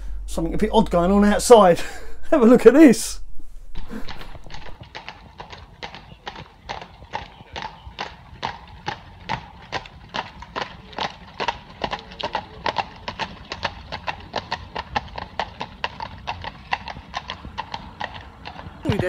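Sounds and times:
horse hooves clopping on tarmac: 3.8 - 19.0.

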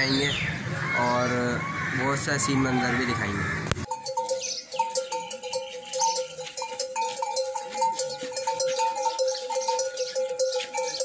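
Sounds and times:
camel bells clanking: 3.8 - 11.0.

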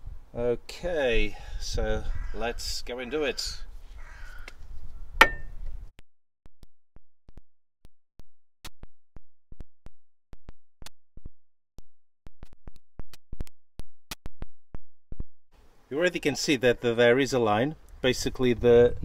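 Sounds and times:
hammer striking steel: 5.2 - 5.6.

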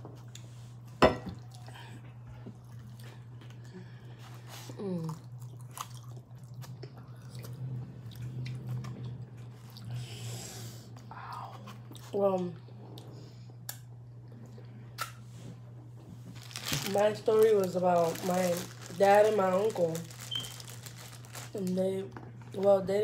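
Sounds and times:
steady low hum: 0.0 - 23.0
close chewing and mouth sounds: 1.4 - 10.2, 11.0 - 15.2.

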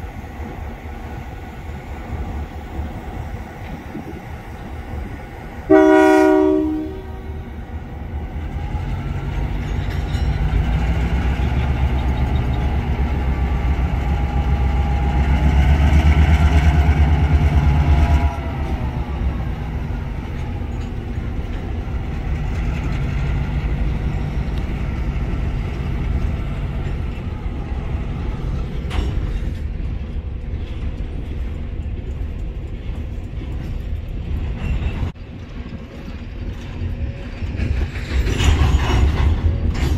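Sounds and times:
diesel locomotive engine: 0.0 - 39.9
freight cars rolling past: 0.0 - 39.9
locomotive horn blast: 5.7 - 7.6.

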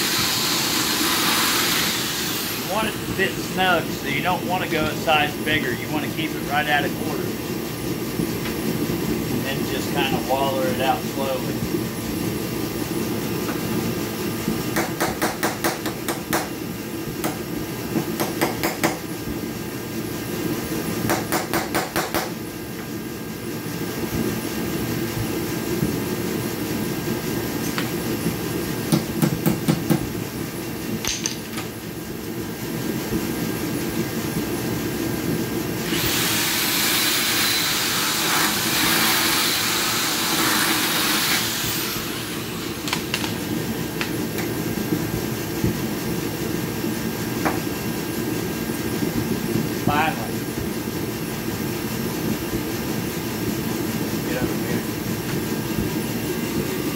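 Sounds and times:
electric drill drilling metal: 0.0 - 3.2, 35.8 - 43.4.

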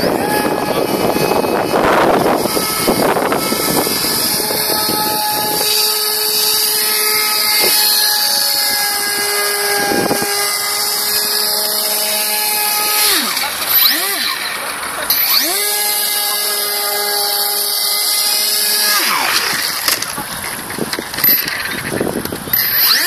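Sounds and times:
propeller motor whining: 0.0 - 23.0.

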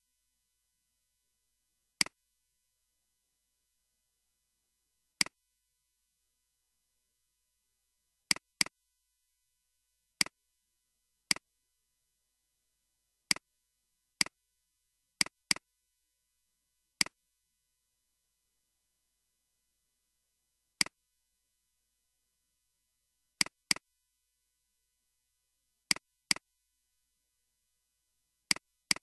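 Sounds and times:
computer mouse clicks: 8.3 - 8.7, 28.5 - 29.0.

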